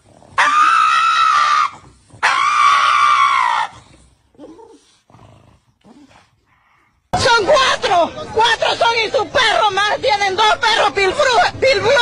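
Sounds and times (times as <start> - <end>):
dog screaming: 0.4 - 3.8.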